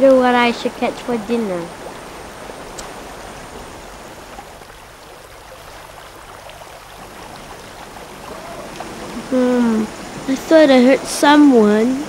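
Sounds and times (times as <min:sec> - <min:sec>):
stream water rushing: 0:00.0 - 0:12.0
faint ticks: 0:02.7 - 0:03.7.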